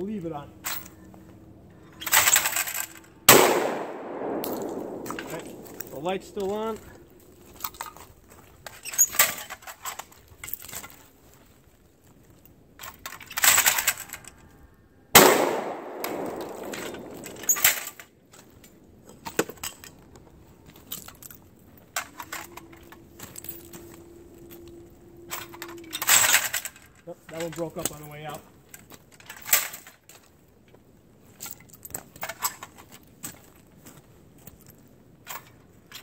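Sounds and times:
shotgun shot with echo: 0:03.3 - 0:06.4, 0:15.2 - 0:17.7.

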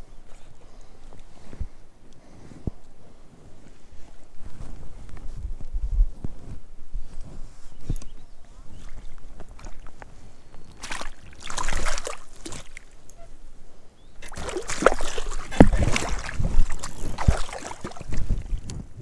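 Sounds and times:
fish splashing in water: 0:10.7 - 0:13.0, 0:14.2 - 0:18.6.

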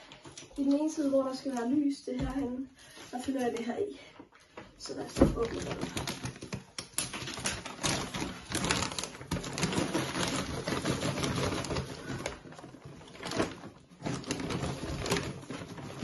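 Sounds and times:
plastic bag crinkling: 0:04.9 - 0:16.0.

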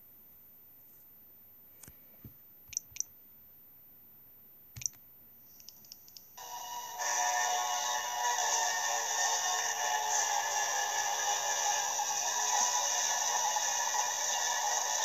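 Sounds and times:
high-pitched music from small speaker: 0:06.4 - 0:15.0.

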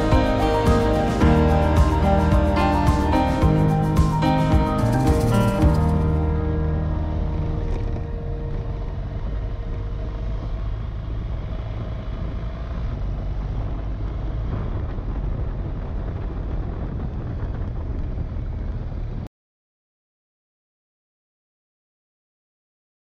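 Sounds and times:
motorcycle engine and tyre noise: 0:00.0 - 0:19.3
wind rush on microphone: 0:07.4 - 0:19.3.

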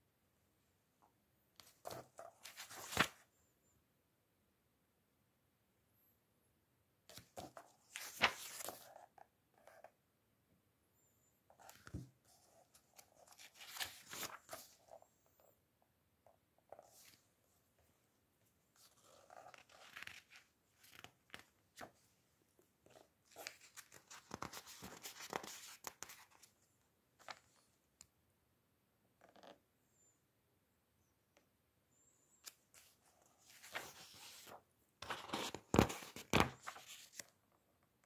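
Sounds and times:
book pages rustling: 0:01.6 - 0:03.2, 0:07.1 - 0:09.9, 0:11.5 - 0:15.1, 0:16.6 - 0:17.3, 0:18.8 - 0:22.1, 0:22.8 - 0:26.6, 0:32.4 - 0:37.4.

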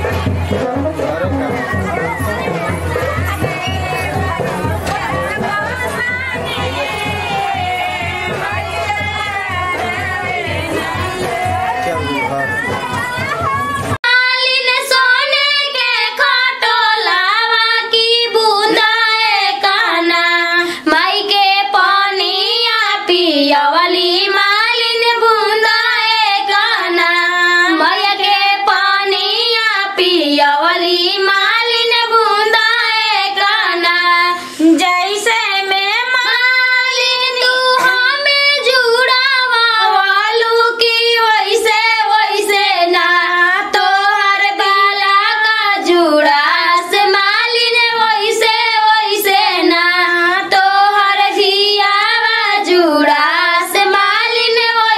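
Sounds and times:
woman singing folk melody: 0:14.1 - 0:54.9.

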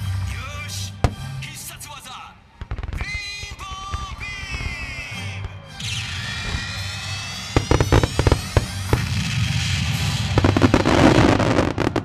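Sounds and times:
music: 0:00.0 - 0:12.0
fireworks bangs: 0:01.0 - 0:01.4, 0:02.6 - 0:12.0
fireworks crackling: 0:02.6 - 0:12.0.

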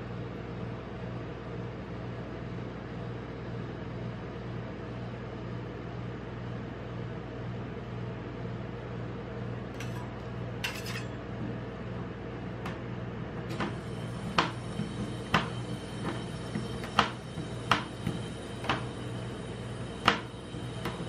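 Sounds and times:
steady low hum: 0:05.4 - 0:21.0
metal spatulas clacking on steel plate: 0:09.8 - 0:11.1.

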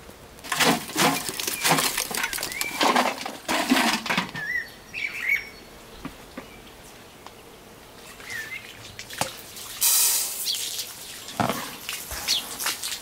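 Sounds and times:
sheet metal clattering and scraping: 0:00.5 - 0:04.4
birds chirping: 0:01.3 - 0:03.0, 0:04.3 - 0:09.6, 0:10.4 - 0:13.0.

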